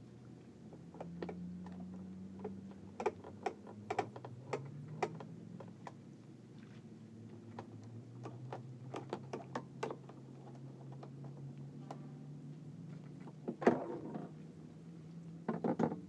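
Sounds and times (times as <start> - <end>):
pvc pipes knocking and clicking: 0.8 - 5.8, 15.5 - 16.0.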